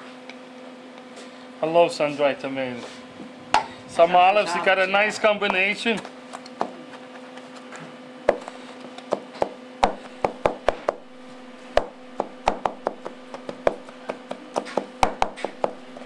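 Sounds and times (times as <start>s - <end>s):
steady low hum: 0.0s - 16.0s
knife chopping on plastic board: 9.1s - 11.1s, 11.7s - 16.0s.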